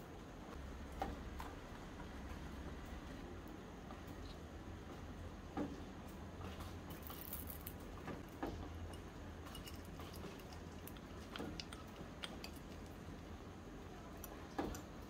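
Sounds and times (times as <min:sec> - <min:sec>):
metal spoon tapping and scraping: 0:08.9 - 0:11.0.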